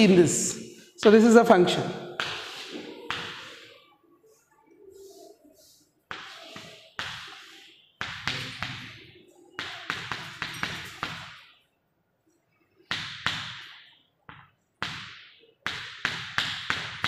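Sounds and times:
chalk tapping on a blackboard: 2.2 - 3.7, 5.0 - 11.4, 12.9 - 17.0.

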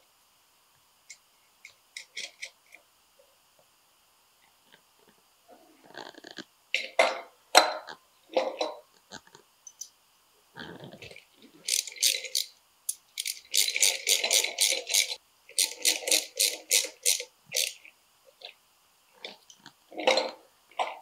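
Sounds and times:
ratchet wrench clicking: 11.6 - 17.8.

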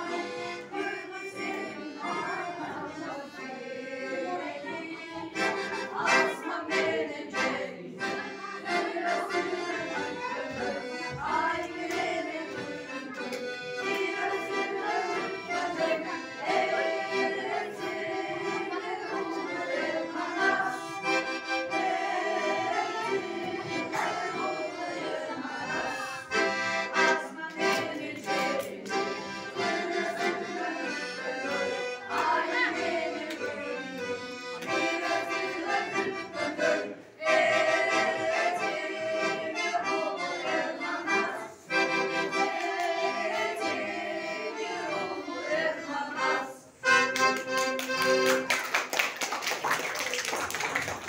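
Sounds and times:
children and adults singing: 0.0 - 47.2
piano accordion: 0.0 - 48.6
people clapping: 11.3 - 14.3, 27.0 - 29.0, 47.0 - 51.0.

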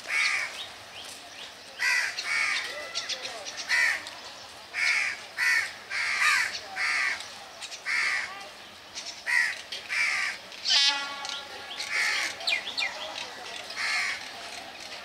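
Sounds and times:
crows cawing: 0.1 - 0.6, 1.8 - 4.1, 4.7 - 7.2, 7.9 - 8.3, 9.2 - 10.4, 11.9 - 12.4, 13.8 - 14.3.

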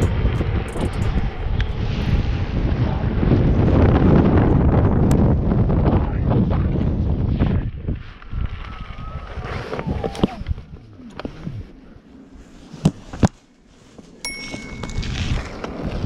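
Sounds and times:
wind noise on microphone: 0.0 - 11.8, 14.3 - 16.0
high-pitched electronic beep: 14.3 - 15.7.

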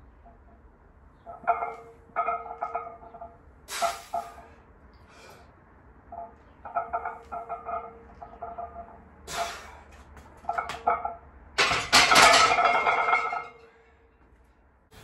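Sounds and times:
barbell plates clinking: 1.2 - 4.4, 6.1 - 9.6, 10.4 - 13.8
hard breath: 3.7 - 5.7, 9.2 - 10.1.

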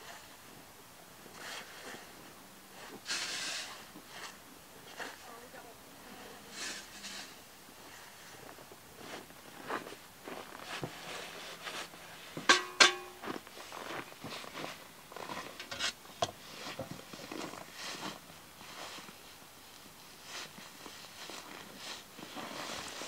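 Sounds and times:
snow shovel scraping snow: 1.3 - 2.1, 2.7 - 5.3, 6.5 - 8.4, 9.0 - 12.4, 13.6 - 19.4, 20.0 - 23.0
footsteps crunching in snow: 7.8 - 23.0
shovel clanking with ringing tone: 12.5 - 13.3.

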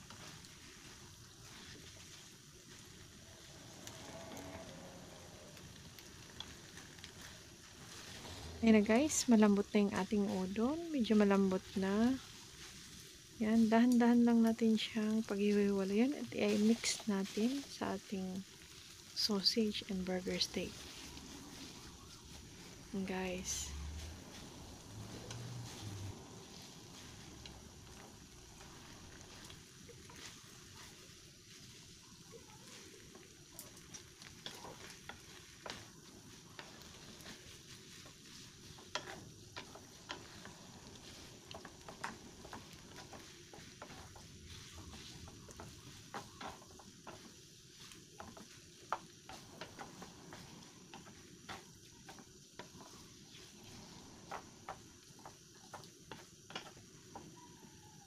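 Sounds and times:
noodles sizzling in a pan: 0.0 - 58.0
wooden utensils tapping a pan: 20.4 - 58.0.

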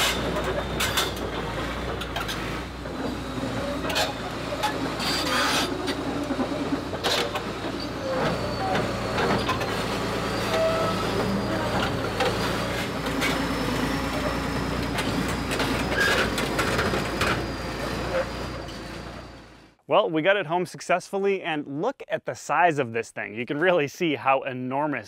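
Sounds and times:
diesel engine running: 0.0 - 19.8
steel crawler tracks clanking: 0.0 - 19.8
thin high squeal: 3.9 - 5.9, 7.2 - 16.4.

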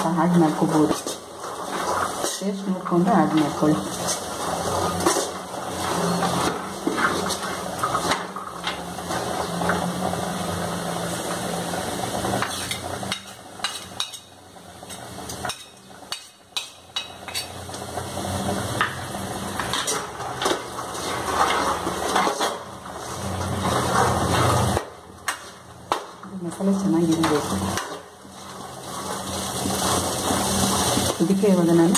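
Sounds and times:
spoon scraping metal pan: 0.6 - 8.4, 12.4 - 14.3, 14.9 - 17.6, 19.6 - 25.6.

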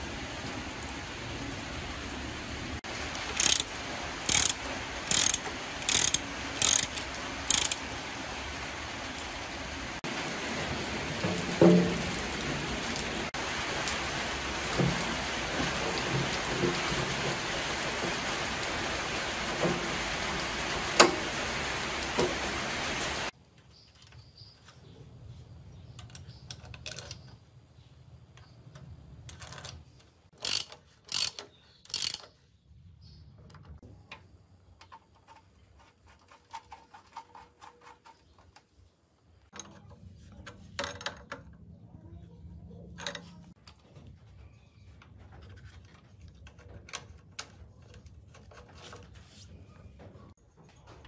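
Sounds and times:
metal parts clicking and clinking: 3.3 - 7.8, 25.8 - 27.4, 29.2 - 32.4.

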